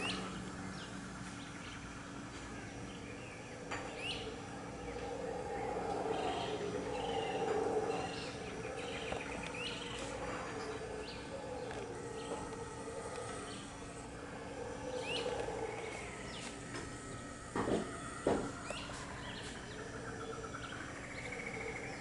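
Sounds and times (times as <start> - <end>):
howler monkeys howling: 0.0 - 22.0
small birds chirping: 0.0 - 22.0
knocks: 17.6 - 18.6.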